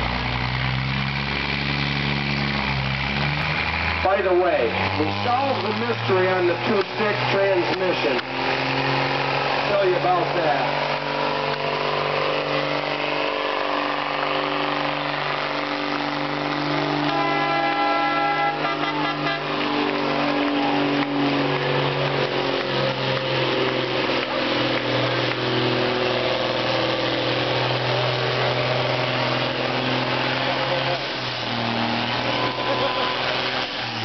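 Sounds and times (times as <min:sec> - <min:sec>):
truck engine running hard: 0:00.0 - 0:34.0
horn: 0:17.0 - 0:19.6.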